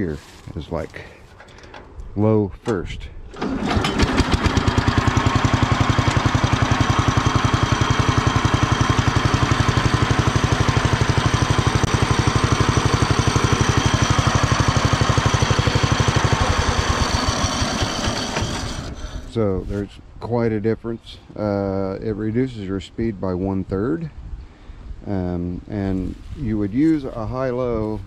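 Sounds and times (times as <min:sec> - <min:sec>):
tractor engine idling: 0:02.6 - 0:19.6.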